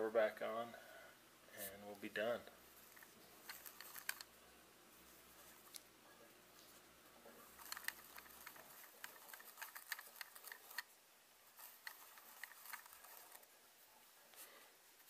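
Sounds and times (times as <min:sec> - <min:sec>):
scratchy clicks: 0:02.8 - 0:04.3, 0:07.4 - 0:10.9, 0:11.6 - 0:13.5
tissue rustling on glass: 0:06.5 - 0:15.0.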